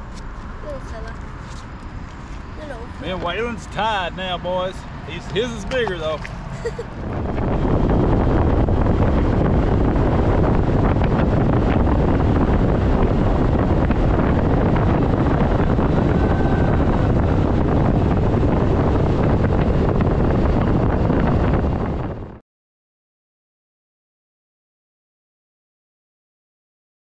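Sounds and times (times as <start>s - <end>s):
heavy wind rush on microphone: 0.0s - 22.4s
outboard motor drone: 2.7s - 22.4s.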